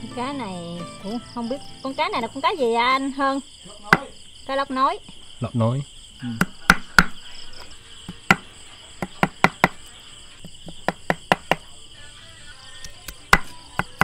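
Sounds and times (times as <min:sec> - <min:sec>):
insects chirping: 0:00.0 - 0:14.0
cleaver chopping fish: 0:06.4 - 0:07.2, 0:13.1 - 0:14.0.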